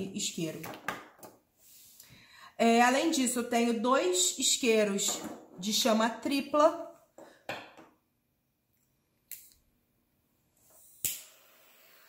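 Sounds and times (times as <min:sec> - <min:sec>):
soft hiss of gas: 0:10.6 - 0:12.0.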